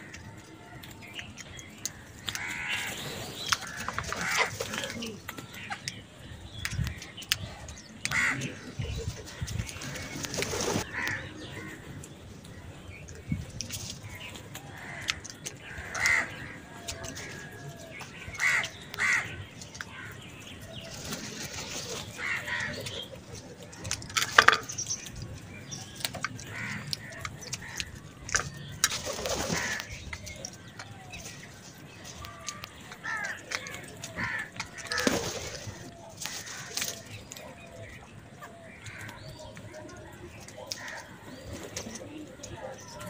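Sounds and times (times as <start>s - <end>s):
crows cawing: 2.2s - 2.9s, 3.5s - 5.0s, 8.1s - 8.7s, 10.8s - 11.9s, 14.6s - 20.3s, 22.1s - 23.0s, 26.5s - 28.5s, 29.4s - 30.7s, 32.1s - 37.1s, 38.5s - 39.4s, 40.8s - 41.2s.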